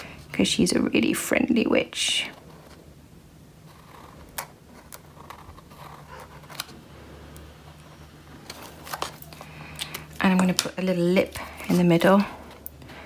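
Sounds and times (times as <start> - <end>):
felt-tip pen scratching: 3.7 - 6.5.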